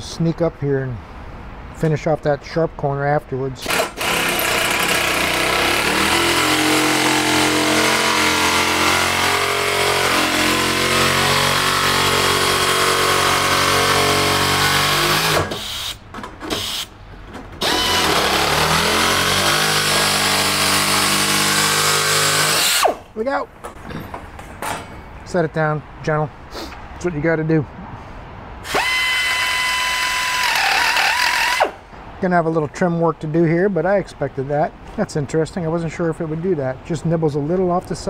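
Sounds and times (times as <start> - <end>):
electric metal cutter cutting steel: 3.6 - 16.0, 17.6 - 23.0, 28.6 - 31.8.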